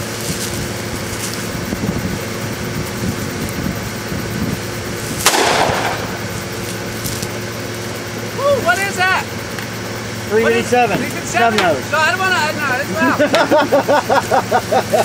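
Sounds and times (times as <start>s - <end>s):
steady background noise: 0.0s - 15.0s
handgun shot: 5.2s - 6.2s.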